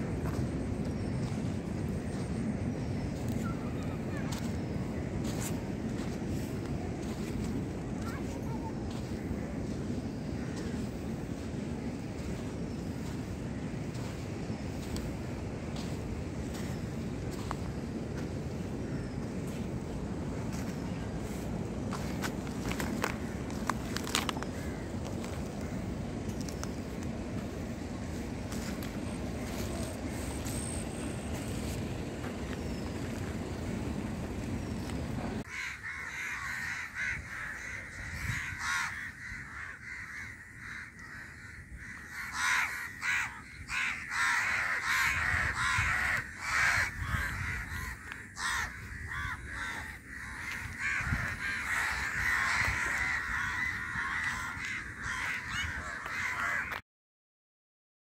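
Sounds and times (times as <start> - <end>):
crows cawing: 8.0 - 11.4, 18.7 - 19.7, 21.3 - 31.4, 34.8 - 56.8
low steady rumble: 24.5 - 35.5.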